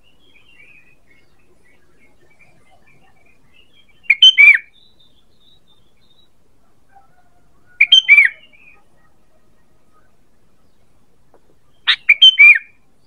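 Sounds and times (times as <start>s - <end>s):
bird whistled calls: 1.7s - 6.3s, 7.7s - 8.9s, 11.7s - 12.8s.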